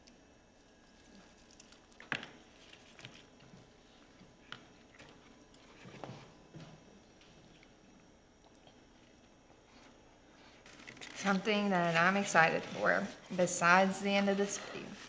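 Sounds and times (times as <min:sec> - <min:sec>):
people chewing: 0:00.8 - 0:06.6, 0:08.4 - 0:11.3.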